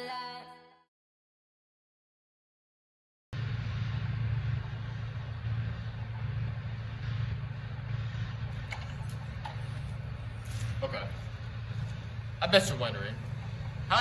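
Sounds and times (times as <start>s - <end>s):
low outdoor rumble: 3.4s - 14.0s.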